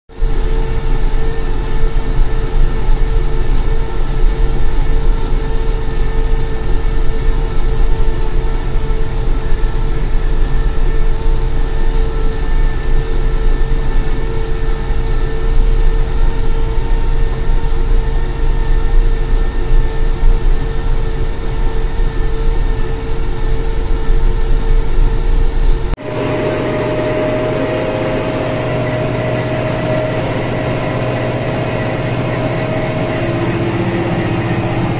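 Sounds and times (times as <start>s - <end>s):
engine whine: 24.8s - 34.9s
tractor engine rumbling: 26.0s - 34.9s.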